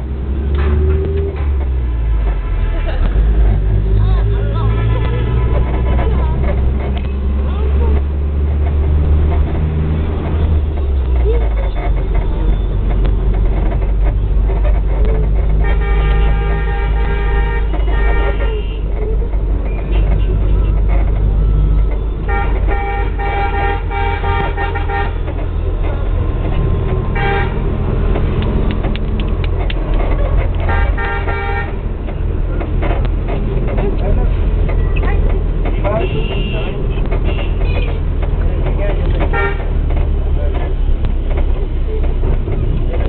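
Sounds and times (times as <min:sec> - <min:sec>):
bus engine running: 0:00.0 - 0:43.0
vehicle horn blasts: 0:15.6 - 0:18.9, 0:22.2 - 0:25.2, 0:27.2 - 0:27.6, 0:30.7 - 0:31.8, 0:35.9 - 0:37.9, 0:39.3 - 0:39.7.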